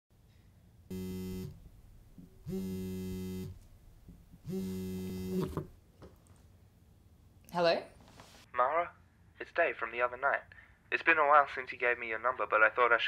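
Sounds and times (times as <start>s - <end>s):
phone buzzing on vibrate: 0.9s - 1.7s, 2.4s - 3.6s, 4.4s - 5.7s.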